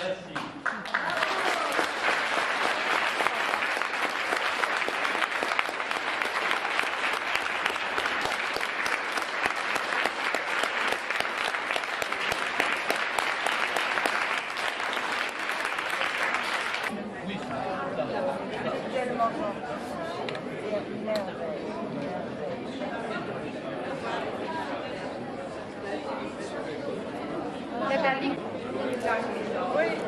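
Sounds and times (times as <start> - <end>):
audience applauding: 0.4 - 16.9.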